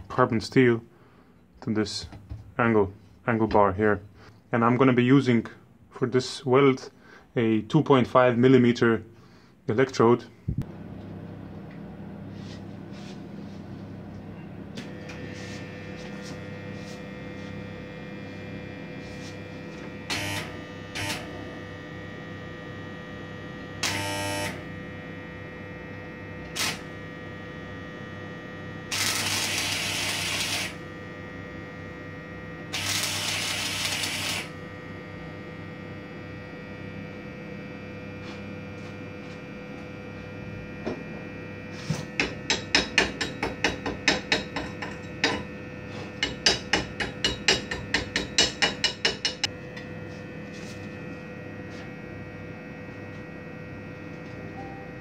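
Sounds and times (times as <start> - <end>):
welder humming: 10.5 - 55.0
welding arc crackling: 14.9 - 25.3, 26.2 - 38.6.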